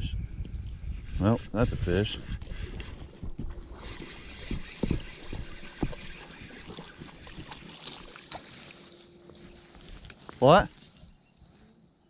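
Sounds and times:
wind on microphone: 0.0s - 8.0s
insect chirping: 0.0s - 12.0s.

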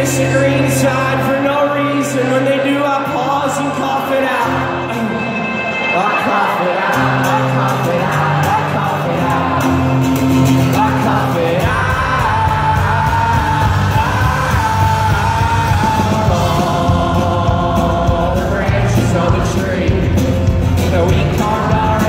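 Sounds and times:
acoustic guitar: 0.0s - 22.0s
person singing: 4.2s - 22.0s
electric guitars: 4.3s - 22.0s
deep bass: 9.3s - 22.0s.

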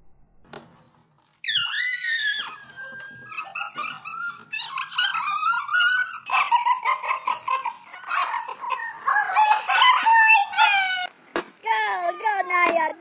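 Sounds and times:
dog yipping and whining: 1.4s - 6.5s.

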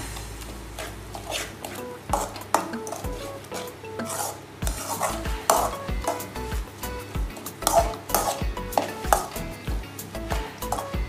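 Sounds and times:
metal spoon scraping a pan: 0.8s - 9.5s, 10.6s - 11.0s.

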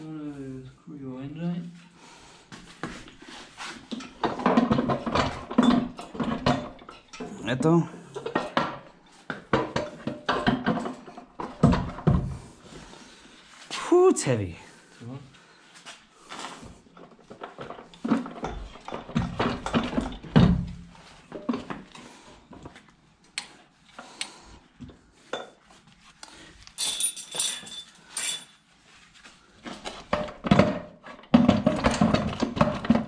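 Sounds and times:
metal clanks and scrapes: 3.3s - 7.4s, 8.0s - 12.4s, 16.2s - 22.1s, 26.8s - 28.7s
chain clinking: 26.8s - 28.6s.

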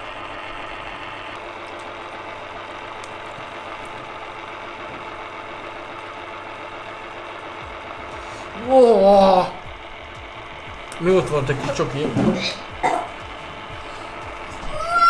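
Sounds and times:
small motor whirring: 0.0s - 15.0s.

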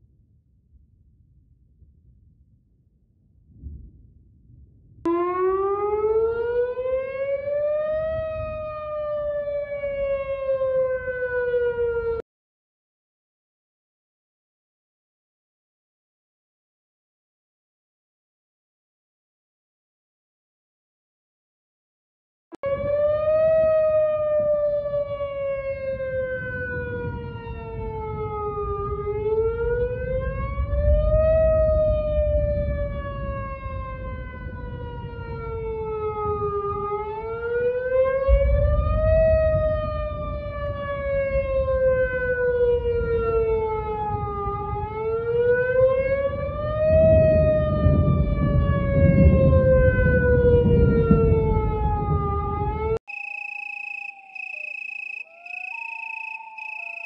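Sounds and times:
warning siren wailing: 5.1s - 12.2s, 22.6s - 57.0s.

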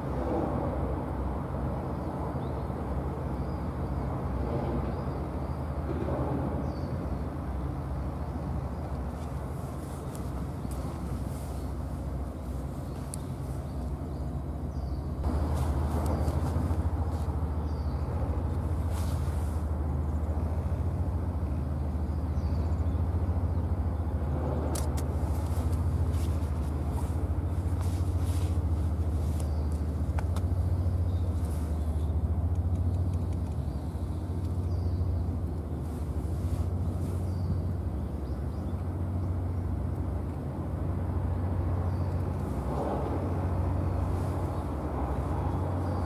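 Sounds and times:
low engine drone: 0.0s - 46.0s
faint clicks: 32.5s - 34.8s.

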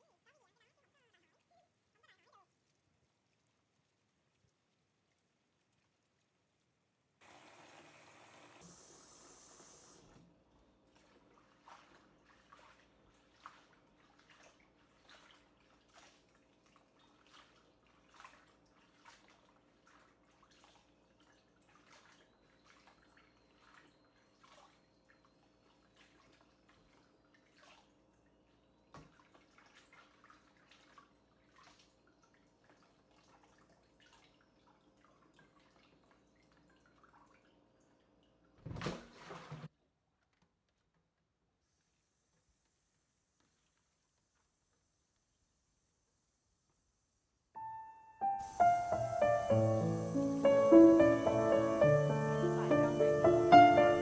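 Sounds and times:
water hissing: 7.2s - 10.2s, 48.2s - 54.0s
small splashes of washing leaves: 10.8s - 39.7s, 48.4s - 54.0s.

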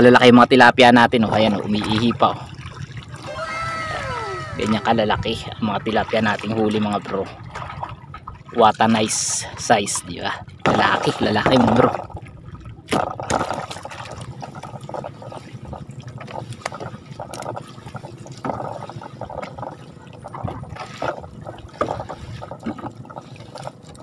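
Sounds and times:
water splashing and trickling: 1.2s - 24.0s
loud splash: 3.1s - 5.4s.

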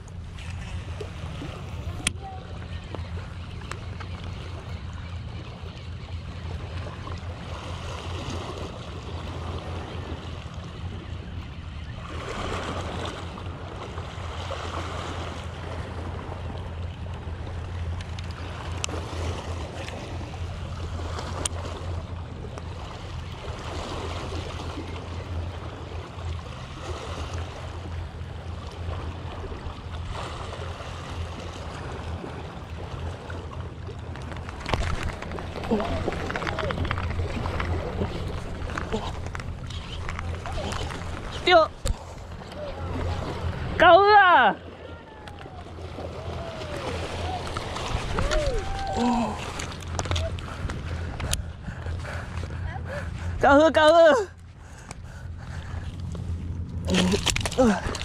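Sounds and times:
steady low rumble: 0.0s - 58.0s
small waves washing against rocks: 33.9s - 43.8s, 45.3s - 51.1s.

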